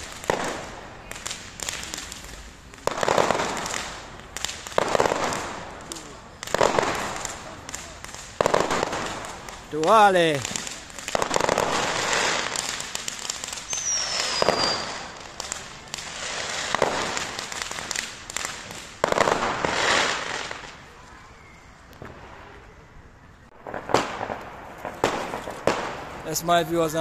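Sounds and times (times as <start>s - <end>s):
firework bangs: 0.0s - 21.0s, 21.9s - 22.7s, 23.5s - 27.0s
firework crackling bursts: 0.0s - 22.7s, 23.5s - 27.0s
falling firework whistle: 10.5s - 23.0s.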